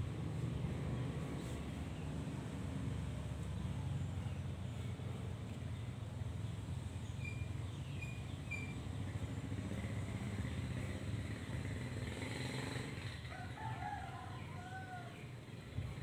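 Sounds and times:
chicken crowing: 13.3s - 15.2s.

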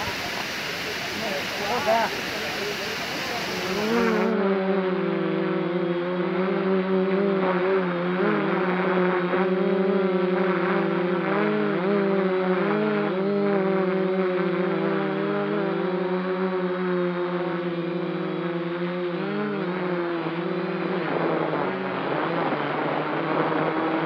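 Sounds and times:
waterfall rushing: 0.0s - 4.3s
drone propellers humming: 0.0s - 24.0s.

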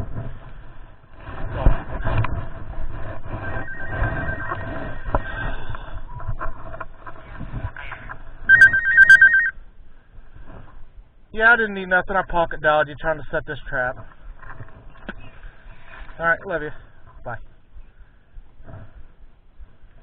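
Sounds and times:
phone ringtone two high tones: 3.4s - 5.4s, 8.5s - 9.6s.

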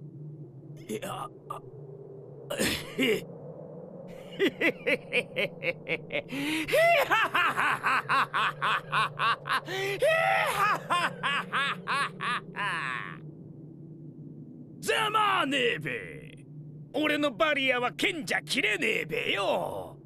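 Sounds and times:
man laughing in rapid bursts: 2.5s - 3.2s, 4.2s - 13.2s.

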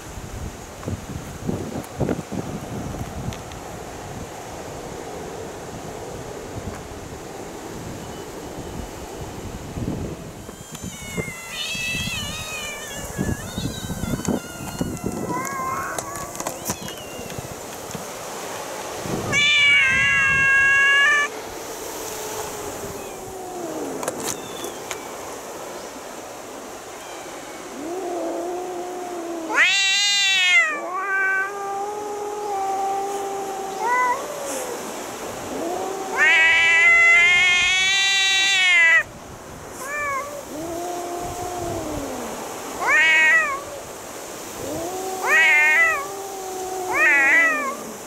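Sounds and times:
cats yowling: 10.4s - 17.8s, 19.2s - 25.0s, 27.0s - 39.1s, 39.8s - 48.0s.

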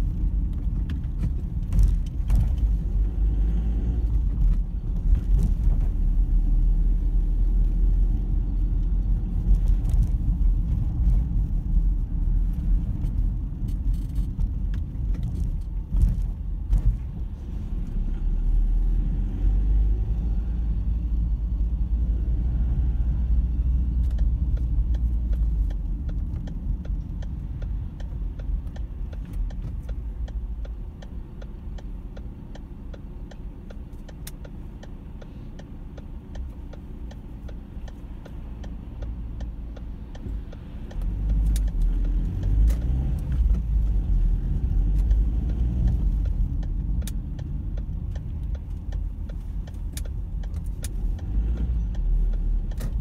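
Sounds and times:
engine and road rumble: 0.0s - 53.0s
faint ticks: 24.0s - 53.0s.

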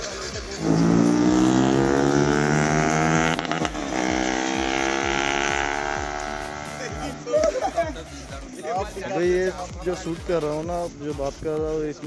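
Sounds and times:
vehicle engine running: 0.0s - 8.3s.

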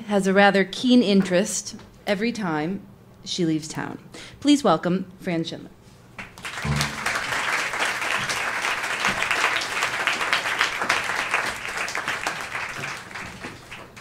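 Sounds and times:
audience applauding: 6.4s - 14.0s.

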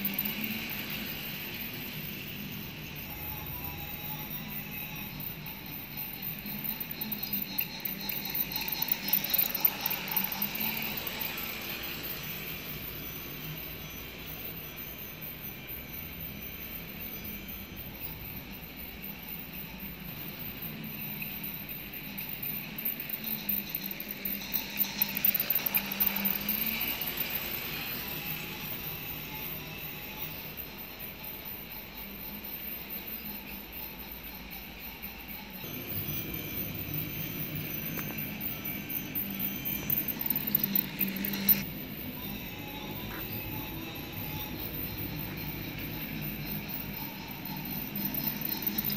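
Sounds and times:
toy train motor whirring: 0.0s - 18.3s, 19.4s - 32.2s, 33.3s - 48.9s
plastic wheels clicking on track: 7.2s - 12.0s, 22.7s - 28.8s, 39.1s - 41.7s.

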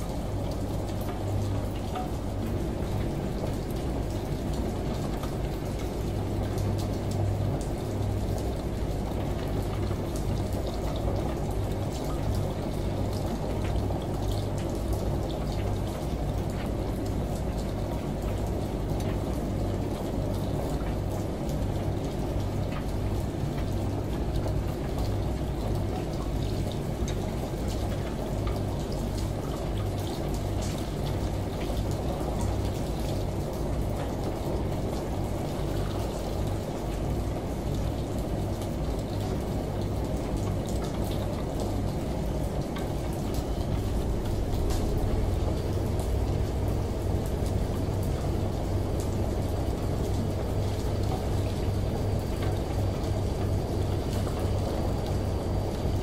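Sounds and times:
water sloshing in washing machine: 0.0s - 56.0s
low motor hum: 43.0s - 56.0s.

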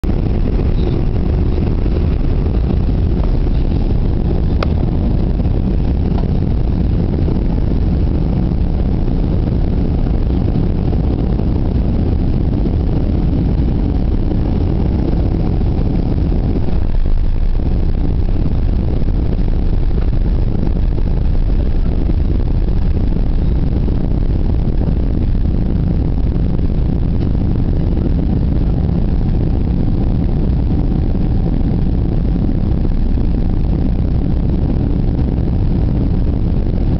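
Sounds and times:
airplane cabin rumble: 0.0s - 36.9s.

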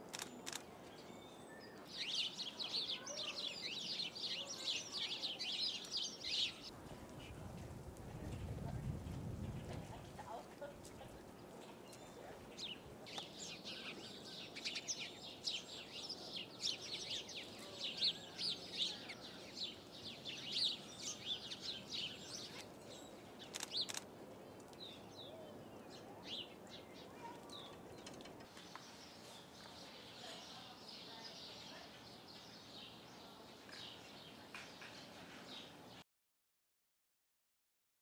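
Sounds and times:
sharp clicks: 0.1s - 0.6s, 23.5s - 24.8s
small birds chirping: 0.1s - 7.4s, 9.4s - 36.0s.

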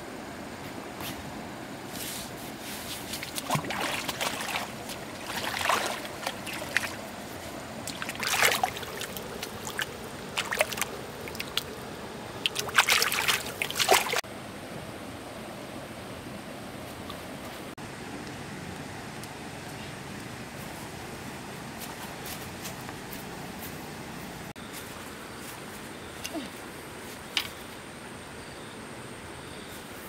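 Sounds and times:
bare feet splashing in water: 2.9s - 11.8s, 12.4s - 14.2s
flowing stream water: 2.9s - 21.7s.

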